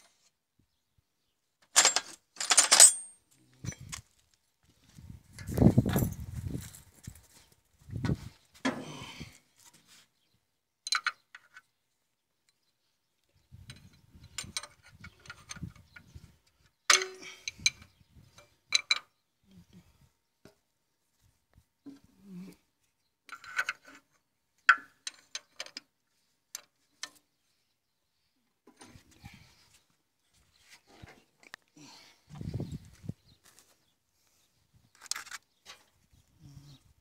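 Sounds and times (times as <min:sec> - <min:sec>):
metallic clinks and knocks from tools: 0:01.7 - 0:04.0, 0:05.8 - 0:06.3.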